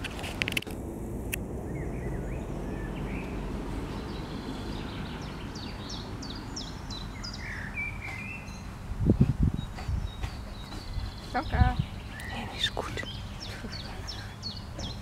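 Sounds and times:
low outdoor rumble: 0.0 - 15.0
songbird chirping: 1.3 - 15.0.

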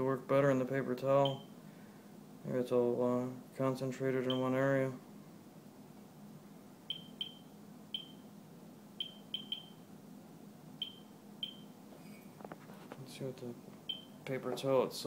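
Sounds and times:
geiger counter chirps: 1.2 - 1.5, 6.9 - 8.2, 9.0 - 9.8, 10.8 - 11.7.

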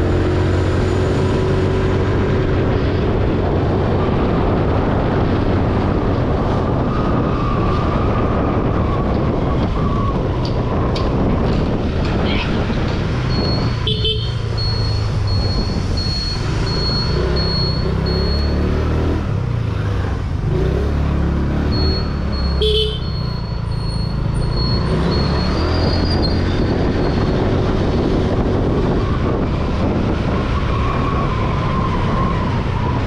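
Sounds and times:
road and wind noise: 0.0 - 33.0
traffic: 0.0 - 33.0
repeating high-pitched beep: 13.3 - 13.8, 14.5 - 18.8, 21.6 - 25.8
vehicle horn: 13.8 - 14.5, 22.5 - 23.3.

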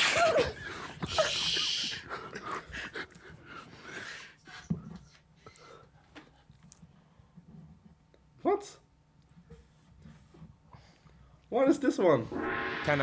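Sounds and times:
stifled breathy laughter: 0.0 - 3.5.

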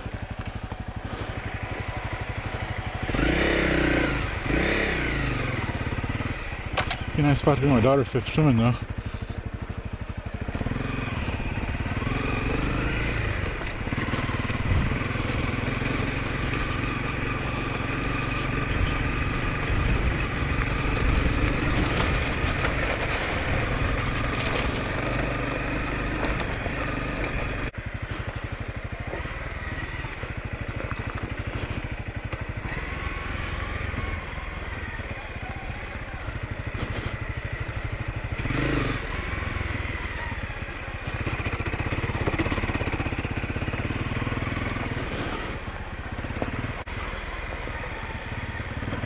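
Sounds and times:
motorcycle engine running: 0.0 - 49.0
tyres crunching on gravel: 20.5 - 32.8.

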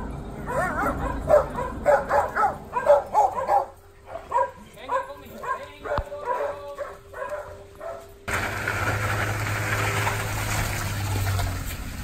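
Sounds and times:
dogs barking: 0.0 - 8.2
van engine running: 8.3 - 12.0.

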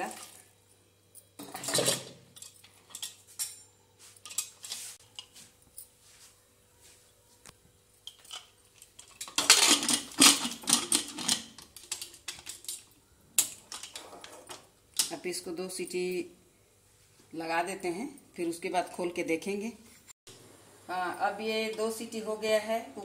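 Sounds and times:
metal pot clattering: 1.4 - 3.6, 8.0 - 15.1.

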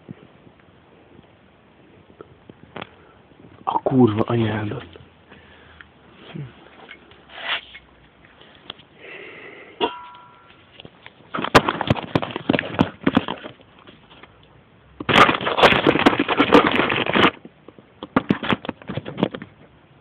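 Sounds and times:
moped engine crackling pops: 15.0 - 19.6.

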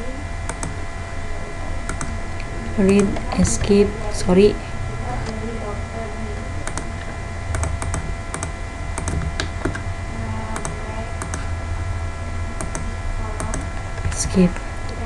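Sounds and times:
steady low hum: 0.0 - 15.0
keyboard and mouse clicks: 6.6 - 9.8.

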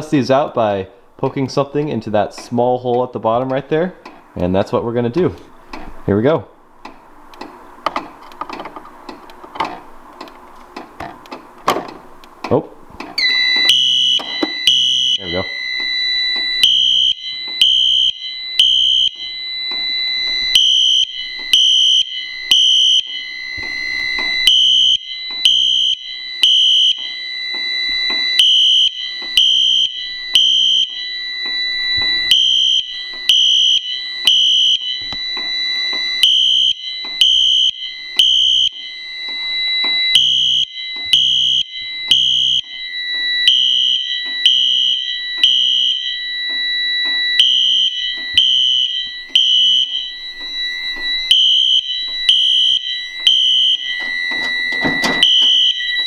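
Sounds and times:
pulsing alarm tone: 13.2 - 56.0
steady high alarm tone: 13.2 - 56.0.

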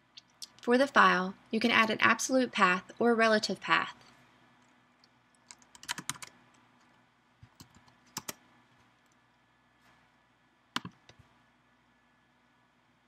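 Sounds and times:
keyboard typing: 5.0 - 8.4, 10.8 - 11.2.

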